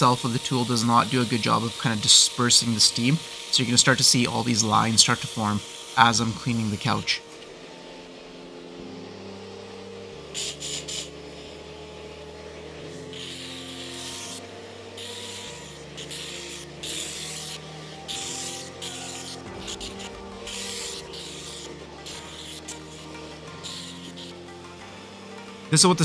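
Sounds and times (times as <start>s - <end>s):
steam cleaner hissing: 0.0s - 26.0s
background music with bass line: 14.2s - 26.0s.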